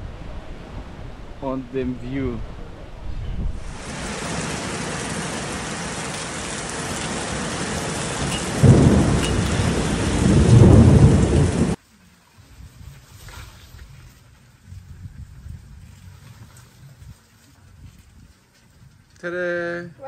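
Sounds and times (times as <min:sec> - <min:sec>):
heavy rain hissing: 0:00.0 - 0:11.8
low rumbles: 0:00.0 - 0:11.8.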